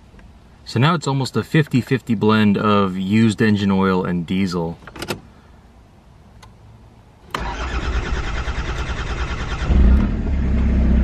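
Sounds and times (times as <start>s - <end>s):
diesel engine cranking on starter: 7.3s - 11.0s.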